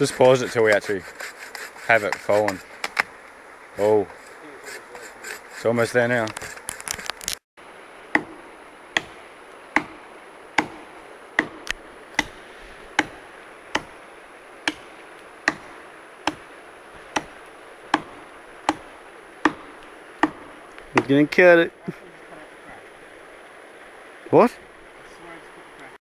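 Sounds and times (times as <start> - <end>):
axe chopping tree trunk: 8.1 - 8.4, 9.0 - 10.0, 10.6 - 14.0, 14.6 - 21.1.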